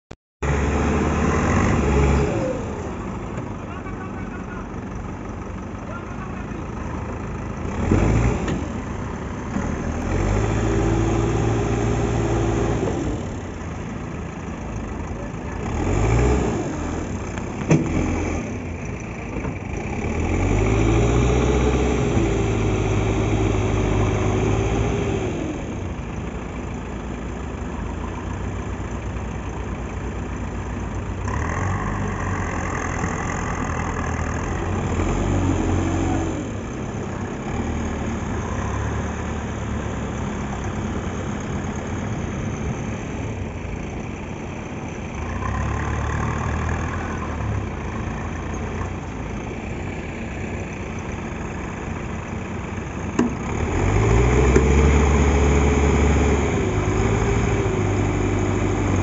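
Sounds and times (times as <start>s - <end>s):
diesel engines revving: 0.4s - 59.0s.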